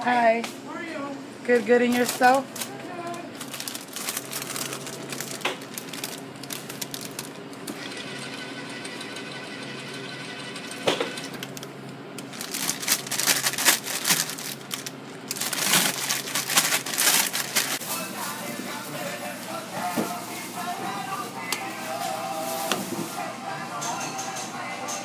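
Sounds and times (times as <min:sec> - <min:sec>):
electrical hum: 0:00.0 - 0:25.0
plastic packet crinkling and clicking: 0:01.9 - 0:07.6, 0:11.3 - 0:17.8
machine whir: 0:02.2 - 0:17.8.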